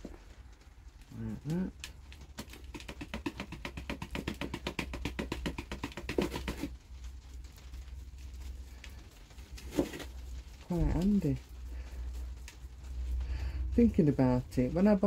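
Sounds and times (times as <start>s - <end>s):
soil rattling in basket: 0.0s - 15.0s
faint rustle: 6.7s - 15.0s.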